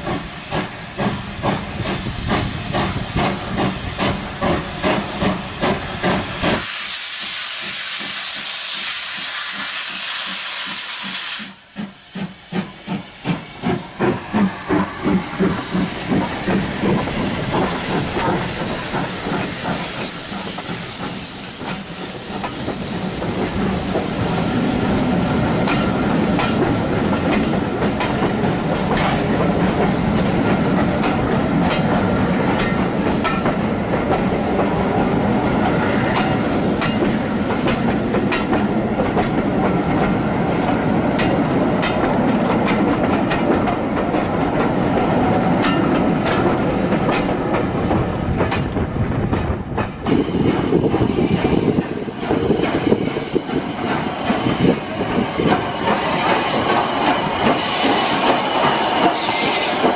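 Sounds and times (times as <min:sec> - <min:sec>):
steam hiss: 0:00.0 - 0:43.7, 0:50.0 - 0:59.9
steam locomotive chuffs: 0:00.0 - 0:59.9
wheels clicking over rail joints: 0:25.6 - 0:34.8, 0:36.1 - 0:59.2.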